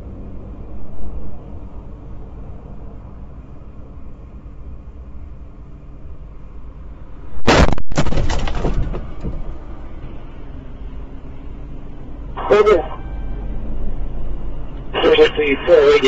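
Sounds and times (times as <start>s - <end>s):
car crash: 7.3s - 10.1s
debris clattering: 7.4s - 9.8s
glass breaking: 7.5s - 9.4s.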